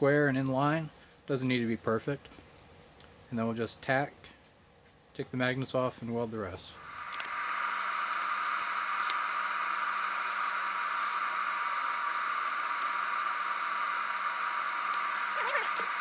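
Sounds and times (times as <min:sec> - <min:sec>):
faint steady hum: 0:00.0 - 0:16.0
welding arc hissing: 0:06.8 - 0:16.0.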